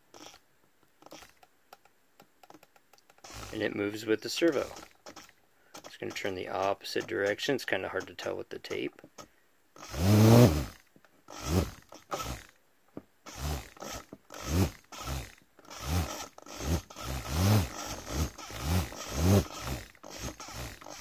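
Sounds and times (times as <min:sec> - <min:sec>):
small electric motor whining: 0:03.2 - 0:03.7, 0:09.8 - 0:12.5, 0:13.3 - 0:21.0.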